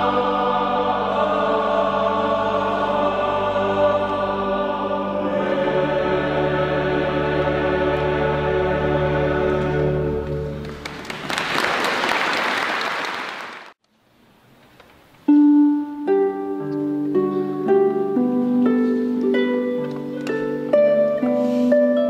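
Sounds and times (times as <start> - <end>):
choir holding a chord: 0.0 - 11.0
audience applause: 10.6 - 13.8
harp melody: 15.3 - 22.0.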